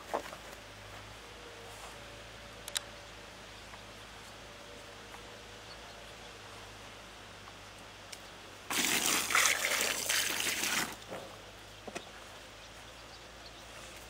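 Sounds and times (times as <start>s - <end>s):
water splashing and trickling: 8.7s - 11.1s.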